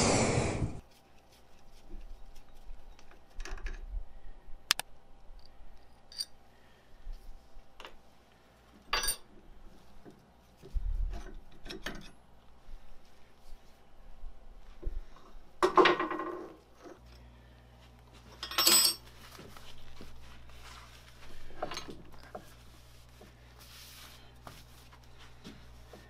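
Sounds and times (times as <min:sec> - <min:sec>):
light metallic clicks and clinks: 0:05.4 - 0:06.4.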